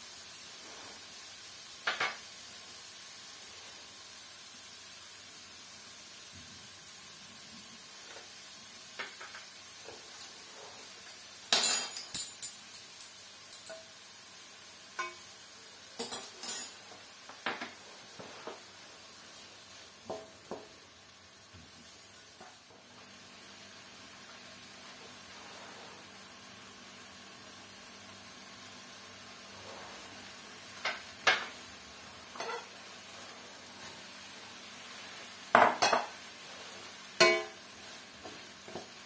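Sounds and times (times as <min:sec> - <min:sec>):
food sizzling in a wok: 0:00.0 - 0:39.0
wooden spatula scraping in pan: 0:09.0 - 0:11.2, 0:17.0 - 0:20.7, 0:29.4 - 0:30.5, 0:32.3 - 0:35.4, 0:36.1 - 0:39.0.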